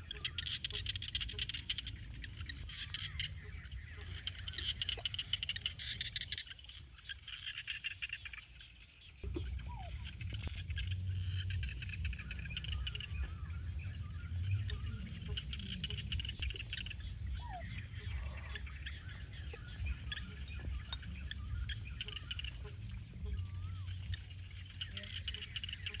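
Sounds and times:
insects trilling: 0.0s - 26.0s
low rumble: 9.2s - 24.8s.

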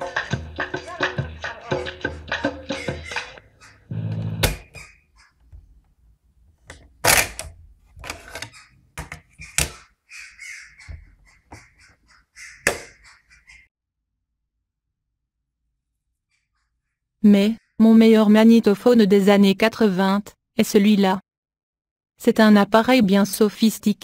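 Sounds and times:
plastic clicks and clunks: 6.6s - 9.8s.

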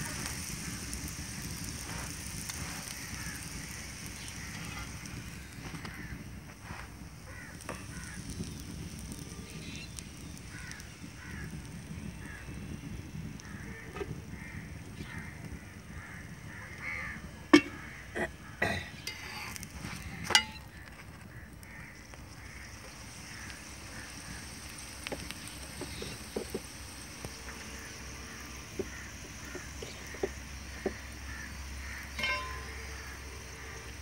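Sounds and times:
flatbread cooking on griddle: 0.0s - 34.0s
metal tongs clacking on griddle: 1.8s - 5.2s, 18.6s - 21.0s, 32.2s - 33.2s.

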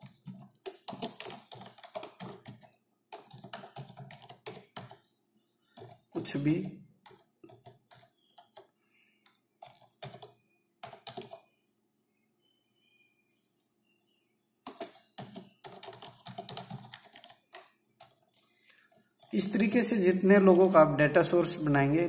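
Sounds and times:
computer keyboard keystrokes: 0.0s - 5.0s, 5.8s - 6.2s, 7.0s - 11.4s, 14.6s - 19.3s.

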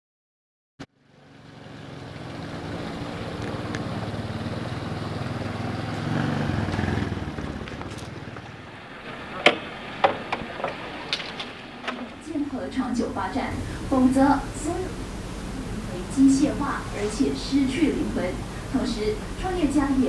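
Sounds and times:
small motorcycle engine running: 0.9s - 11.5s
sharp clicks and knocks: 9.1s - 12.2s.

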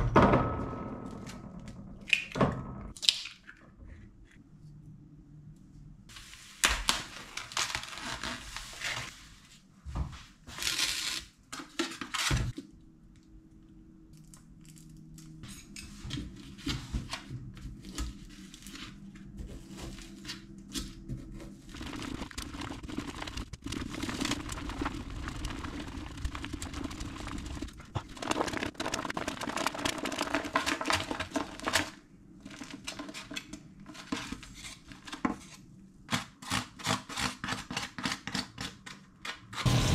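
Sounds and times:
cling film crinkling and tearing: 21.5s - 33.1s
chopsticks scraping plastic pack: 28.0s - 35.6s.

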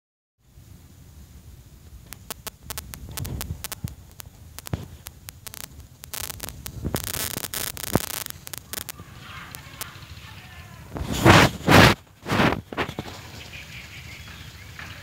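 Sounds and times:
wind rumble on microphone: 0.7s - 8.1s, 10.9s - 13.0s
sharp clicks and taps: 2.1s - 9.0s.

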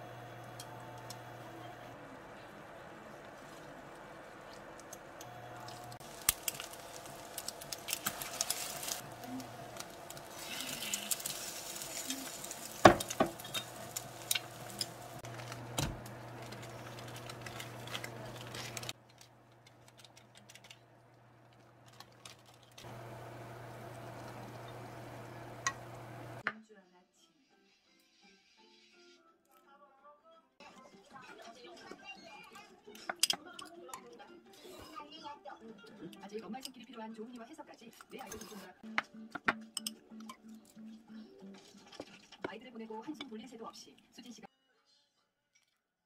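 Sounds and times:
chopsticks stirring noodles: 2.9s - 15.6s
food sizzling in oil: 5.3s - 18.9s, 22.9s - 26.4s.

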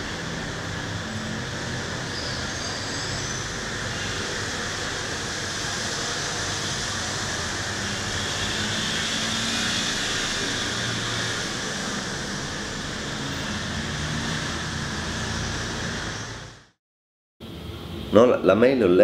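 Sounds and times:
steady rumbling noise: 0.0s - 16.8s.

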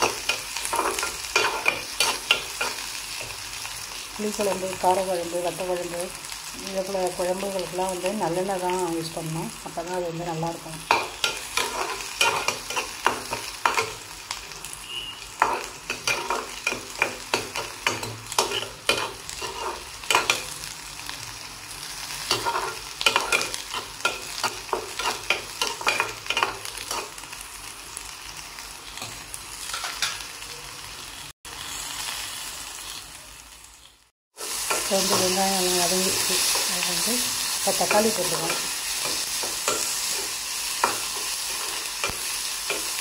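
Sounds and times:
food sizzling in oil: 0.0s - 43.0s
spatula scraping a pan: 10.9s - 14.0s, 15.3s - 20.6s, 22.2s - 27.2s, 37.4s - 43.0s.

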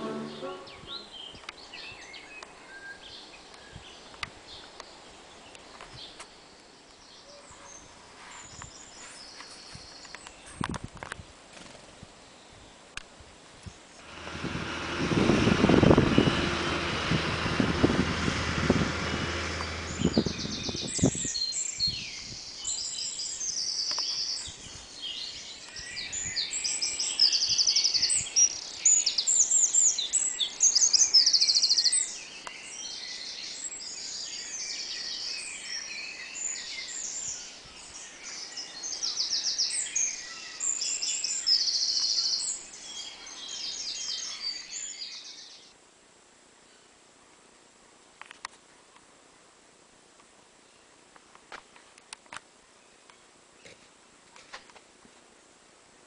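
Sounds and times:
songbirds chorus: 0.0s - 10.8s, 13.6s - 45.8s
loud rushing noise with hum: 14.0s - 21.2s.

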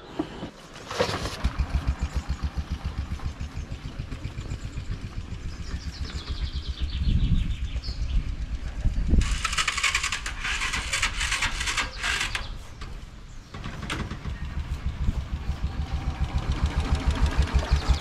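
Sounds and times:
motorcycle engine cranking: 9.2s - 15.0s.

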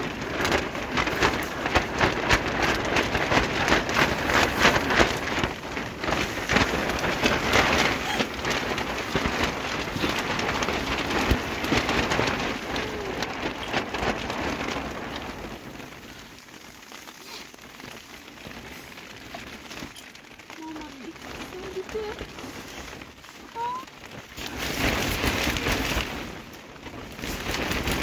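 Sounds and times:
rain on tent fabric: 0.0s - 28.0s.

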